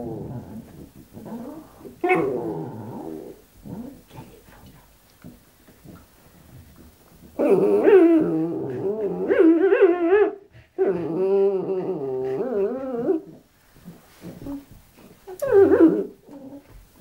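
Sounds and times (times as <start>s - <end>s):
dog growl-whining: 0.0s - 4.1s, 7.4s - 16.8s.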